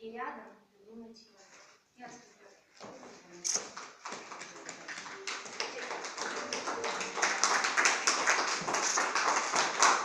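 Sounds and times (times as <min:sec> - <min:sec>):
people clapping: 0:03.5 - 0:10.0.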